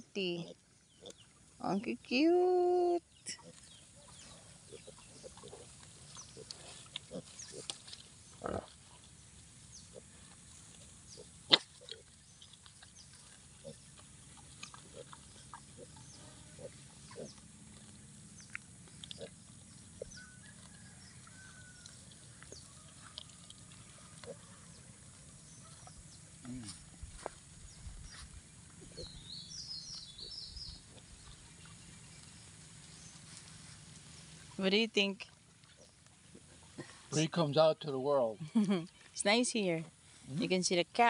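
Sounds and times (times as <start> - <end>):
pigs grunting softly: 3.2 - 27.0.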